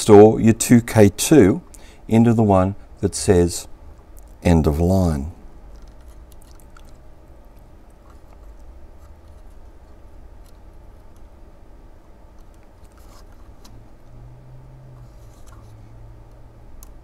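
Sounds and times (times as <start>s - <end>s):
steady low hum: 0.0s - 17.0s
small clicks and scratches: 5.7s - 11.3s, 12.3s - 14.2s, 15.0s - 17.0s.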